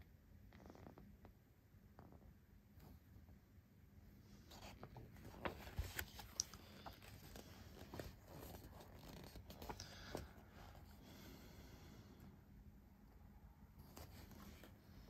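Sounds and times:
magazine pages being turned: 0:04.5 - 0:10.4.

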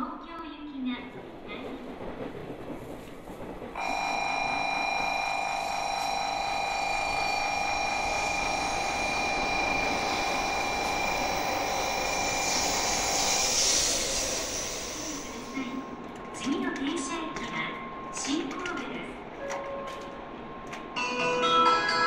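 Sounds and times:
electric warning buzzer: 0:03.8 - 0:15.6
hiss of arriving train: 0:03.8 - 0:16.0.

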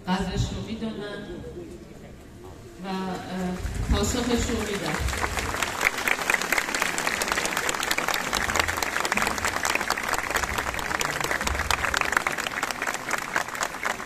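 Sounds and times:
crowd applauding: 0:03.6 - 0:14.0.

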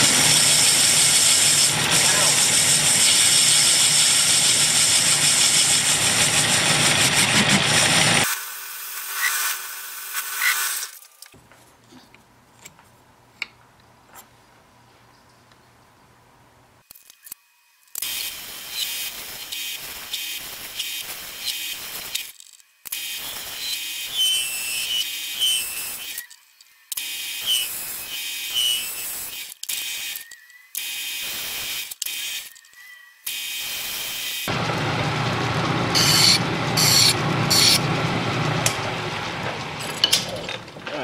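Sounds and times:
metal lathe cutting hiss: 0:35.9 - 0:37.8.

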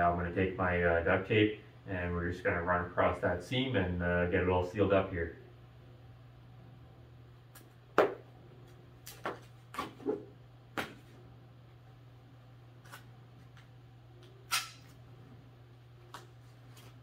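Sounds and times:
low steady hum: 0:00.0 - 0:17.0
duct tape ripping: 0:14.5 - 0:15.0.

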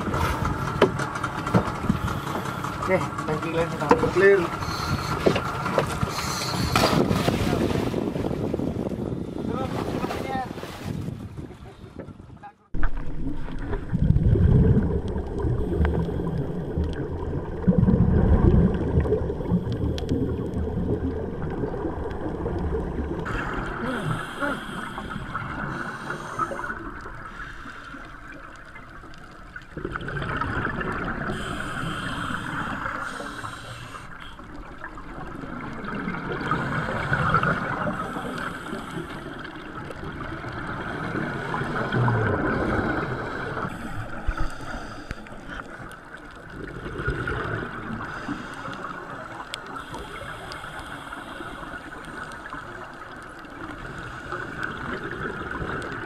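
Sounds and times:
underwater regulator breaths: 0:01.7 - 0:02.9, 0:04.5 - 0:07.0, 0:23.3 - 0:28.2, 0:31.3 - 0:34.4, 0:43.0 - 0:45.8, 0:48.0 - 0:52.5
bubbles gurgling: 0:12.8 - 0:27.4, 0:28.0 - 0:33.5, 0:34.4 - 0:44.4, 0:45.3 - 0:48.2, 0:51.7 - 0:56.0.

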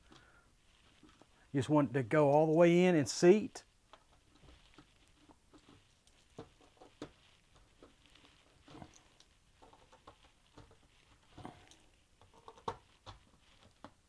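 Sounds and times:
small clicks and taps on plastic: 0:12.2 - 0:14.0.

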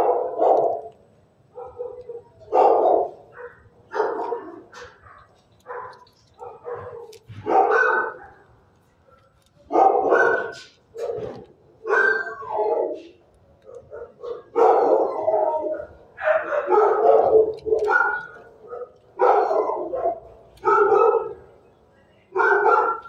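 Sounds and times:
dog barking: 0:00.0 - 0:21.5, 0:22.4 - 0:23.0.

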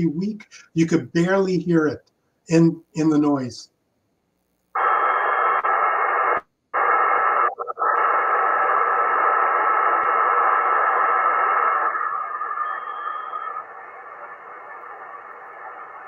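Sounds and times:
radio static hiss: 0:04.7 - 0:16.0
faint steady tone: 0:09.2 - 0:16.0.

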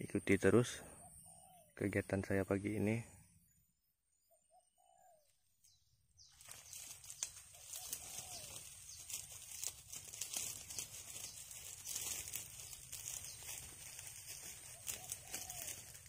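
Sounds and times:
soft bird calls: 0:00.0 - 0:16.0
crackling rustle with small clicks: 0:06.3 - 0:16.0.

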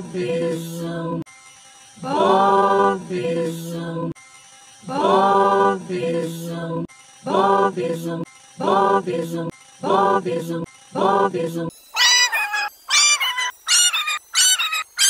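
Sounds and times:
looped cartoon voice chanting: 0:04.9 - 0:15.0.

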